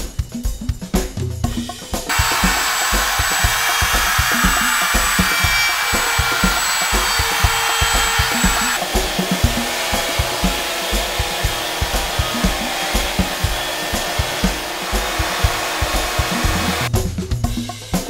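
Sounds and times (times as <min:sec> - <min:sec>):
drum beat music: 0:00.0 - 0:18.0
orbital sander whirring: 0:02.1 - 0:16.9.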